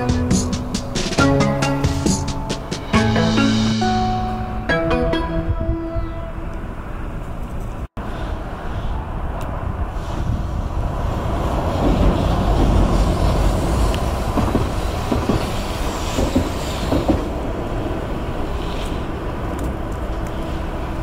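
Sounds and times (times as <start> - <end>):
tram wheels rumbling on rails: 0.0 - 4.3, 6.0 - 21.0
clacks over rail joints: 11.7 - 17.5.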